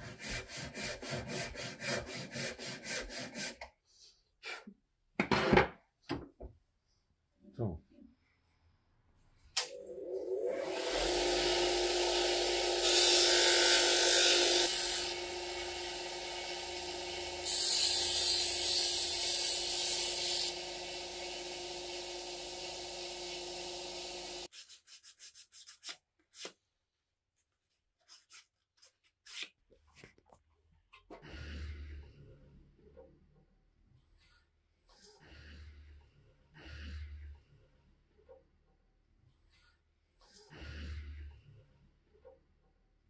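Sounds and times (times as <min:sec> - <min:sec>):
woodworking machine humming: 0:09.6 - 0:24.5
wood sanding abrasive hiss: 0:16.5 - 0:24.5.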